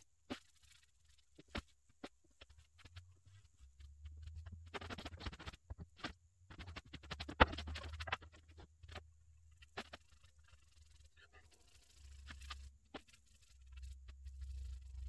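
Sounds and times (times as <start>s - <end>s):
brush scrapes: 0.0s - 15.0s
low steady hum: 0.0s - 15.0s.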